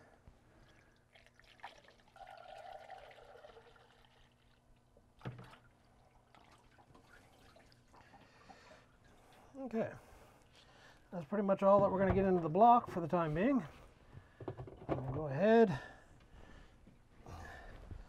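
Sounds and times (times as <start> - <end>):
liquid trickling through funnel: 0.6 - 9.6.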